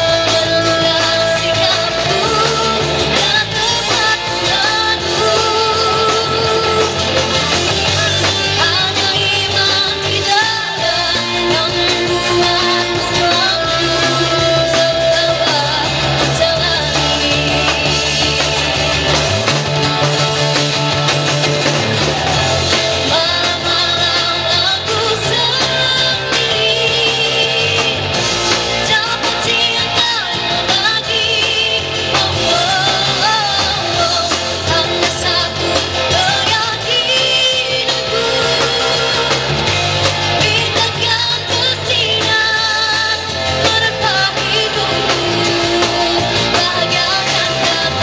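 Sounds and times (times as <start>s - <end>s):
girl singing into a microphone: 0.0s - 7.1s, 8.4s - 18.1s, 28.8s - 39.5s, 40.4s - 48.0s
live rock band: 0.0s - 48.0s.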